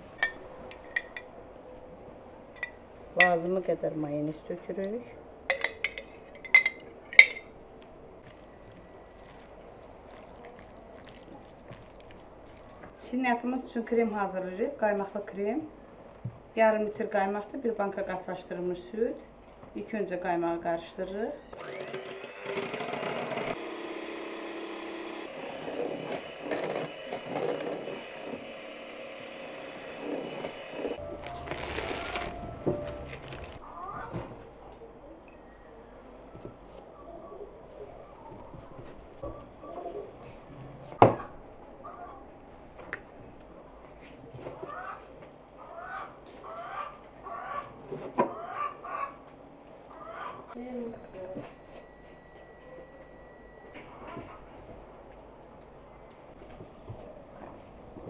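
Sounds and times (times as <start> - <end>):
utensil clinking against dish: 5.5 - 7.5
electric mixer motor whine: 21.6 - 32.3
beaters scraping bowl: 24.8 - 32.3.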